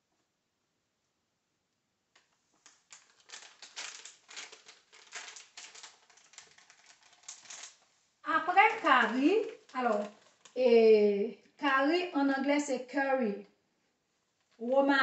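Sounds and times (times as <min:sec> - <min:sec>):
plastic packet crinkling: 0:02.6 - 0:10.7.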